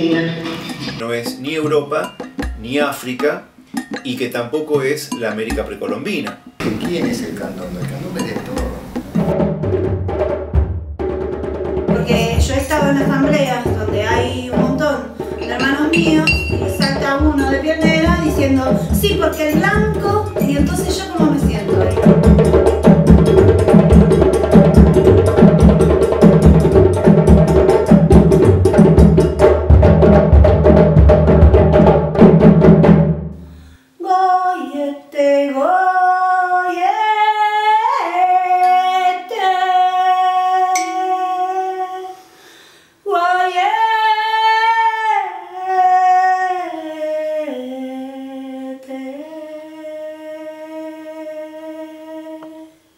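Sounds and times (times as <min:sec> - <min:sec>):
group singing with drums: 0:00.0 - 0:01.0, 0:11.9 - 0:29.3, 0:40.7 - 0:41.2
djembes drumming: 0:00.0 - 0:33.3
woman singing wordless melody: 0:11.9 - 0:22.2, 0:34.0 - 0:42.3, 0:43.0 - 0:52.9.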